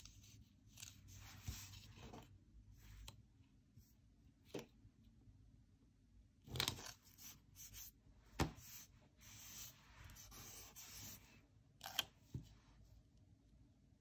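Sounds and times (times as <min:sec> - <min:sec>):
rubbing on paper: 0:08.6 - 0:11.3.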